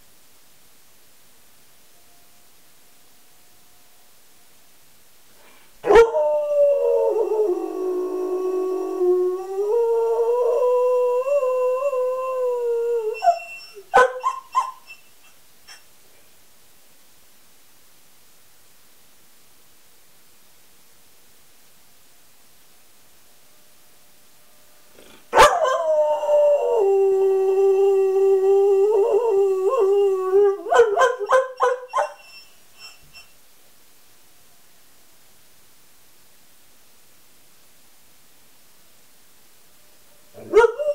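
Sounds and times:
dog howling: 5.8 - 14.9, 25.3 - 32.4, 40.3 - 40.9.

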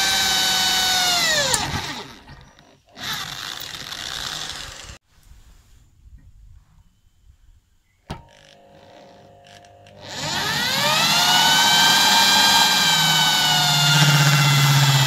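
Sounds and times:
electric drill whining: 0.0 - 5.0, 8.3 - 15.0.

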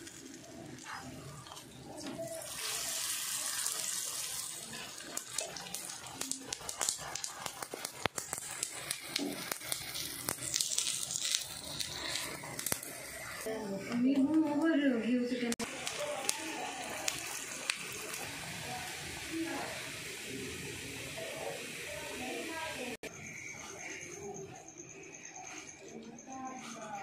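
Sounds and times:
flatbread sizzling in fat: 0.0 - 13.8, 15.6 - 23.1
small crackles: 3.4 - 14.3, 15.6 - 18.3.

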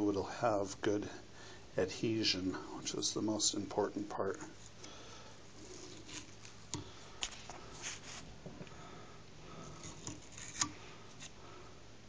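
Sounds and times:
tape rustling: 5.5 - 8.6.

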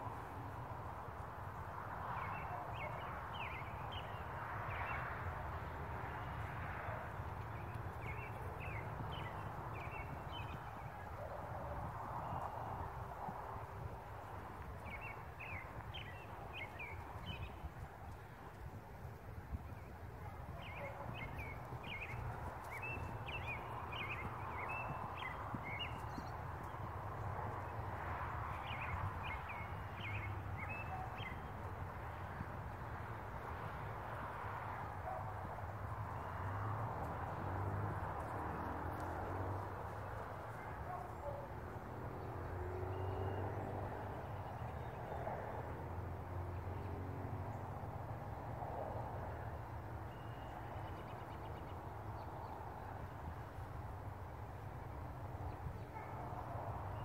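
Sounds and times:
distant engines humming: 0.0 - 57.0
small birds chirping: 6.2 - 12.8, 13.7 - 32.1.

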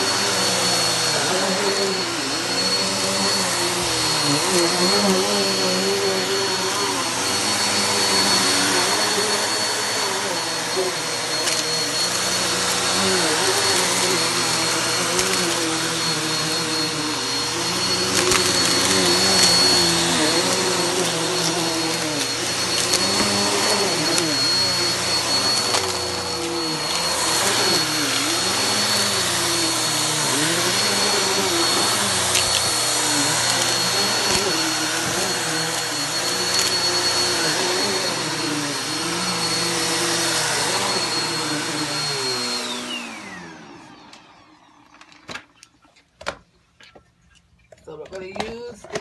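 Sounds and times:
vacuum cleaner running over rugs: 0.0 - 45.2.

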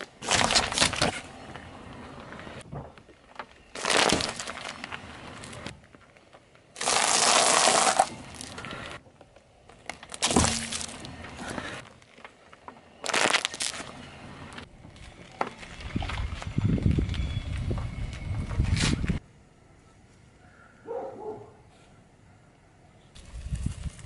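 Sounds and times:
apples bursting under tyre: 3.3 - 9.0, 9.9 - 14.0
seeds crackling and crunching: 3.3 - 14.0
drink carton bursting: 3.8 - 4.7, 6.8 - 8.5, 10.1 - 10.9.

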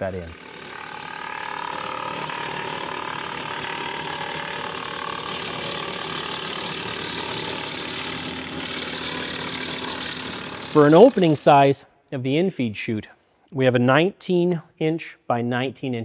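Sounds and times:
machine humming: 0.0 - 11.6
wood chipper chipping branches: 0.0 - 11.6.

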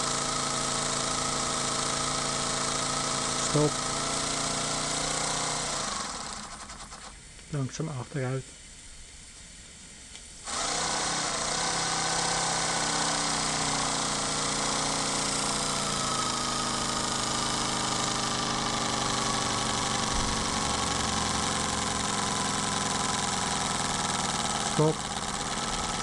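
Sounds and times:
steam hissing: 0.0 - 26.0
steady engine hum: 14.1 - 26.0.

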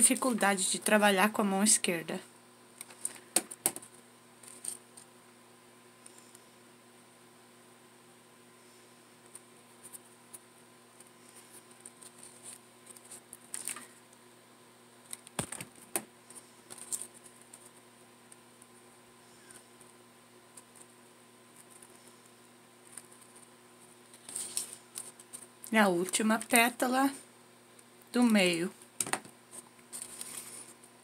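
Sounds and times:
fingers rustling ribbon: 9.3 - 14.0, 19.5 - 26.7.

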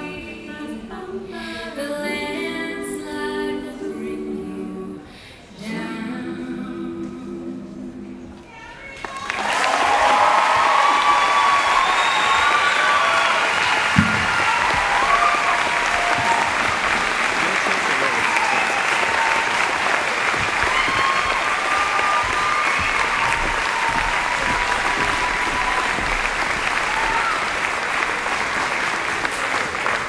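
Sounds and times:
voices calling out and whooping: 8.5 - 27.6
audience applauding: 8.9 - 30.0.

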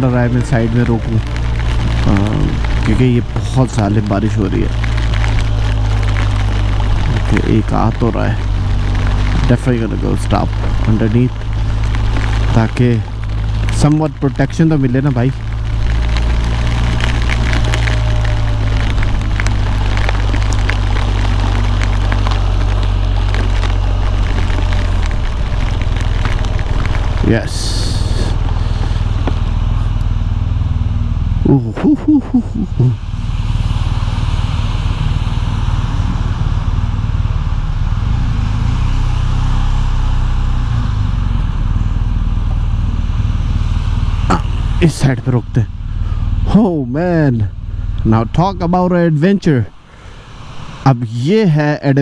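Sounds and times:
motorcycle engine running: 0.0 - 38.0
wind and spray hiss: 0.0 - 46.5, 47.6 - 52.0
raindrops ticking on bike: 0.0 - 50.8.

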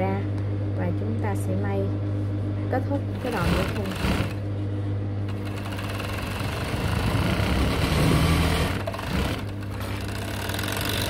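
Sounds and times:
overlock machine stitching: 3.2 - 4.5, 5.3 - 11.0.

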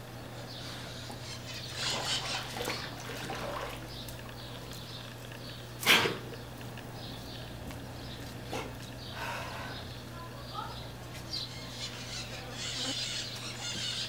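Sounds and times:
steady low hum: 0.0 - 14.0
water sloshing and splashing: 1.8 - 6.2.

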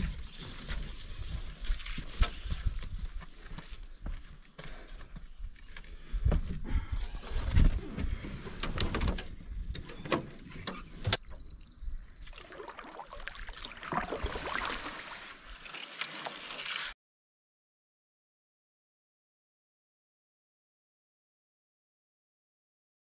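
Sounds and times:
footsteps: 0.0 - 8.6
paddling through reeds: 12.0 - 17.0.

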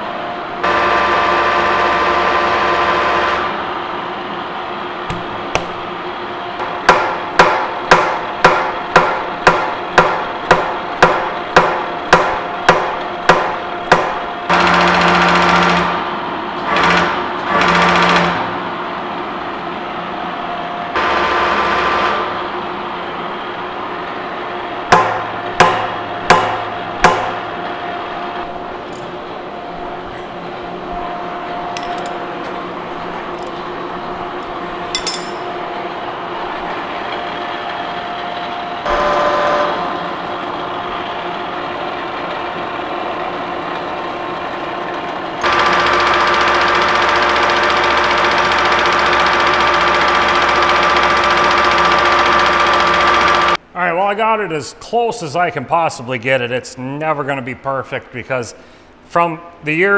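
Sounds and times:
machine motor running: 0.0 - 34.9, 35.5 - 53.6
hammer striking steel plate: 6.6 - 14.2, 24.9 - 27.5, 34.9 - 35.6.

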